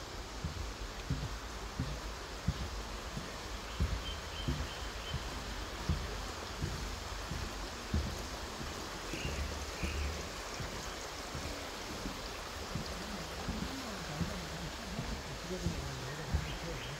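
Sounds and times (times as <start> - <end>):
forest stream rushing: 0.0 - 16.9
bird chirps: 3.7 - 5.3, 9.1 - 10.2.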